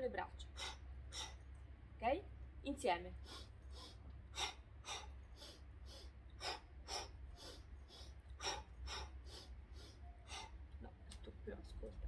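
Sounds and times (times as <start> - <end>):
woman breathing forcefully: 0.5 - 1.5, 3.2 - 10.7.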